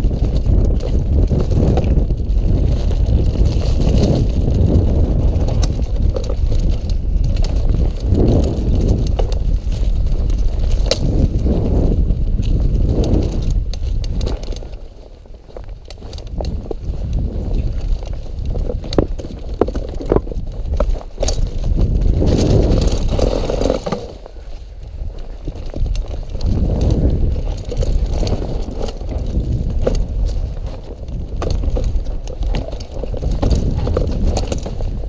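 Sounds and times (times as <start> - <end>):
bike chain and frame rattling: 0.0 - 35.0
bike tyres on dirt: 0.0 - 35.0
wind buffeting microphone: 0.0 - 35.0.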